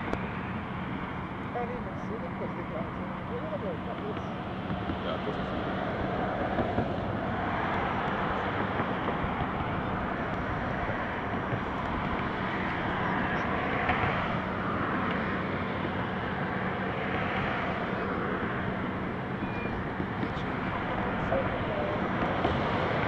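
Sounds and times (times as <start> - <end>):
cars passing: 0.0 - 23.0
low traffic hum: 0.0 - 23.0.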